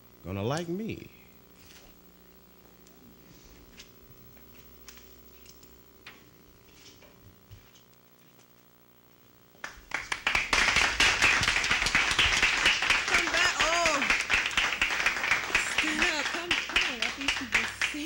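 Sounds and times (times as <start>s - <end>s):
studio audience applauding: 9.6s - 18.0s.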